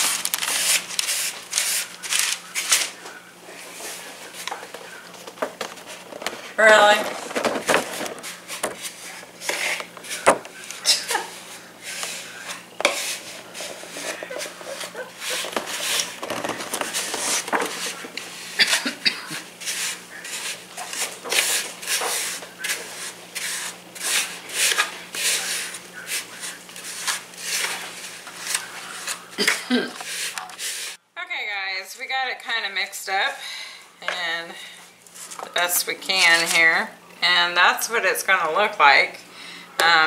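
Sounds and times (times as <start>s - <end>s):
spoon stirring and scraping bowl: 0.0s - 31.0s
steady low hum: 0.2s - 31.4s.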